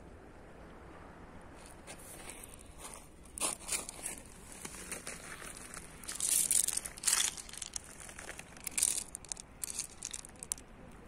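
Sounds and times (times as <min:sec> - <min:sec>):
footsteps crunching on pebbles: 0:01.9 - 0:10.6.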